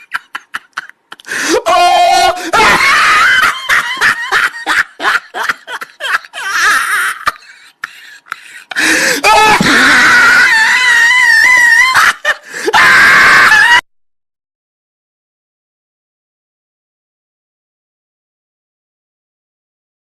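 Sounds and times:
person laughing loudly: 0.0s - 13.8s.

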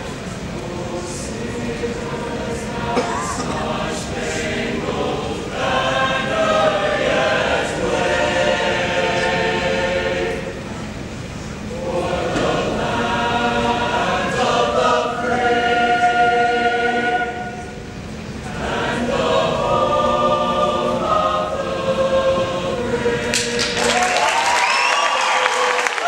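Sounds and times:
choir singing a cappella: 0.0s - 24.2s
applause: 23.3s - 26.0s.

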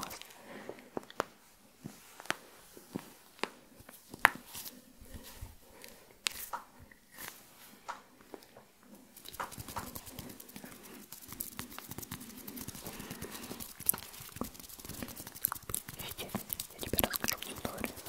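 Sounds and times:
fingers rubbing and clicking: 9.2s - 18.0s.

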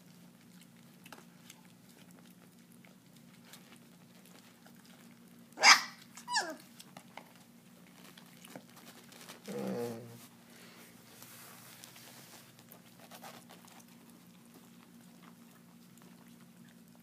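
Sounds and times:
chewing and licking clicks: 0.0s - 9.4s
puppy yelping: 5.6s - 6.7s
puppy growling low: 9.3s - 10.3s.

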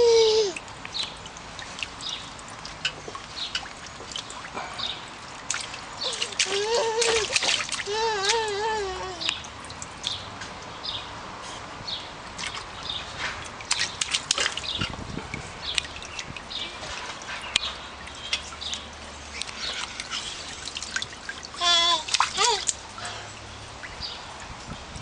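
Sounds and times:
hands splashing water in pool: 0.5s - 10.8s, 12.3s - 24.5s.

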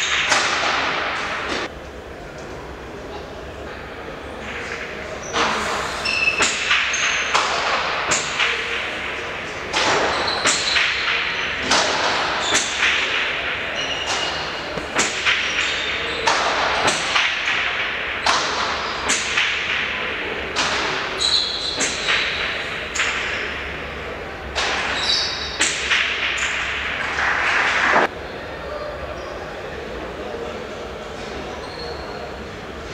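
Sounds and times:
ball cracking against walls: 14.1s - 19.8s.

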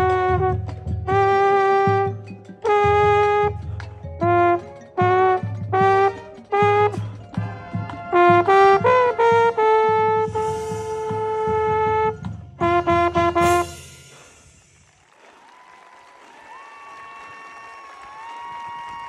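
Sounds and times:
marching band brass playing: 0.0s - 14.6s.

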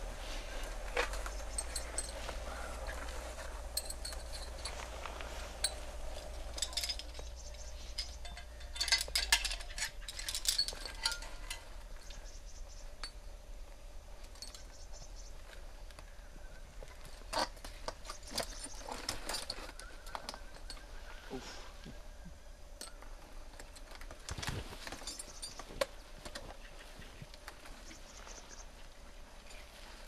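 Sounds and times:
climbing hardware clinking: 0.8s - 12.3s, 14.2s - 15.0s, 17.1s - 20.9s, 22.8s - 26.5s.

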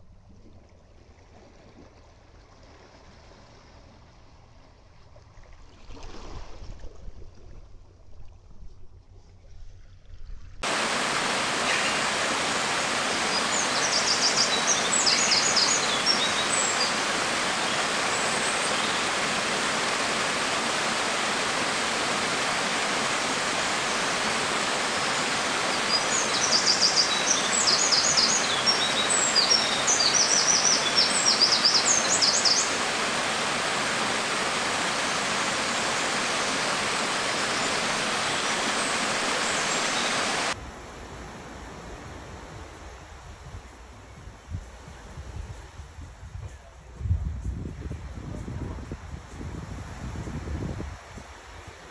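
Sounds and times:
waterfall splashing into pool: 10.6s - 40.6s
bird chirping: 13.0s - 19.2s, 25.0s - 32.9s.

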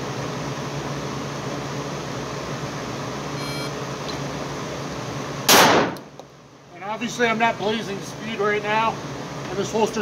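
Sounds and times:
ventilation hum: 0.0s - 10.0s
short electronic beep: 3.4s - 3.8s.

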